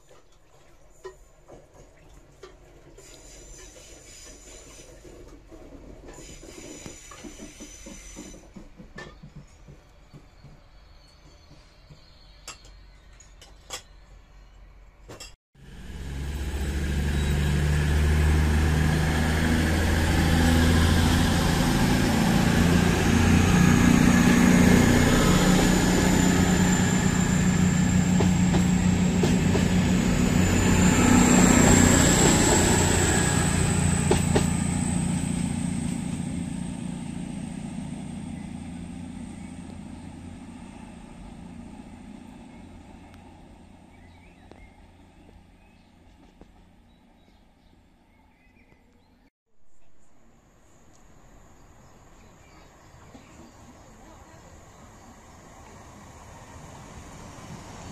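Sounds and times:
train diesel engines droning: 0:03.0 - 0:14.7, 0:15.6 - 0:47.8, 0:51.1 - 0:57.9
high whine rising in pitch: 0:15.6 - 0:43.2.

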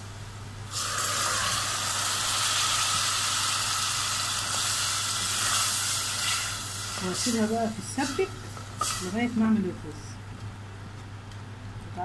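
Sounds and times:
puree pouring into pan: 0:00.7 - 0:06.9
onions sizzling in hot fat: 0:00.7 - 0:09.9.

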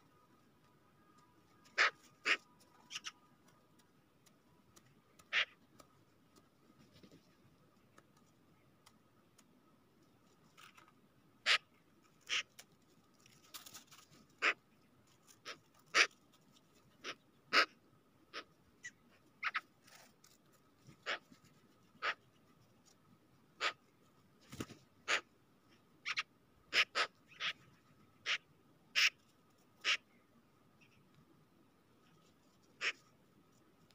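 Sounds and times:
sharp clicks and taps: 0:03.4 - 0:06.6, 0:07.9 - 0:09.6.

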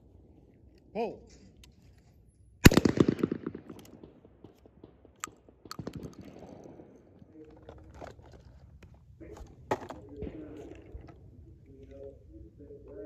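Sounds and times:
shotgun shot echo: 0:02.6 - 0:07.2
shotgun metallic clicks: 0:02.7 - 0:06.8.

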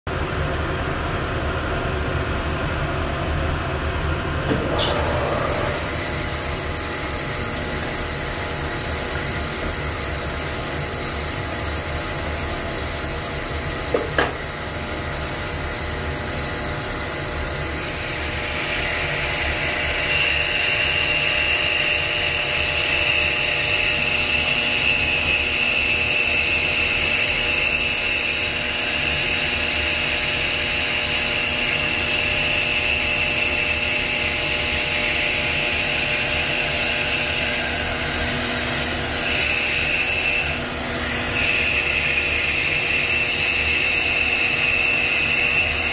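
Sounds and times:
bandsaw running: 0:35.6 - 0:45.9.

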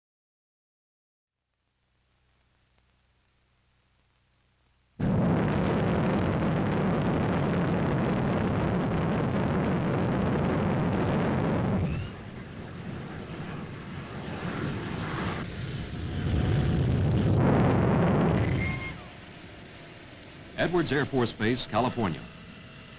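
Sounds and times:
jet engine running: 0:05.0 - 0:22.9.

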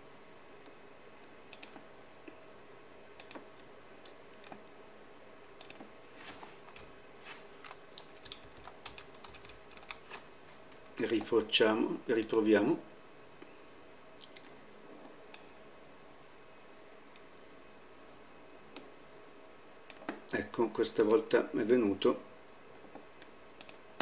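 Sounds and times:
low steady hum: 0:00.0 - 0:24.0
mouse clicks: 0:03.2 - 0:03.5
computer keyboard clicks: 0:07.6 - 0:10.2.

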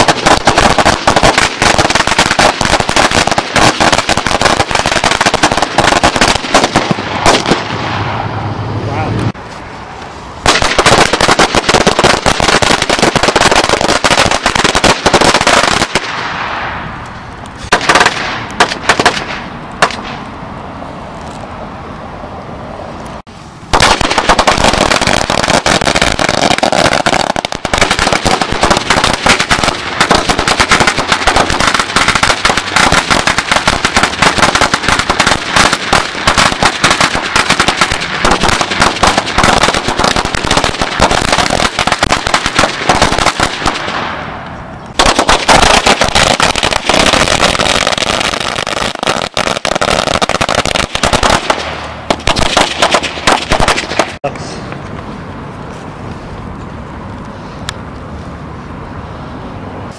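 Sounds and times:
firecrackers banging rapidly: 0:00.0 - 0:08.3, 0:10.4 - 0:16.8, 0:17.6 - 0:20.3, 0:23.7 - 0:44.3, 0:44.9 - 0:54.3.

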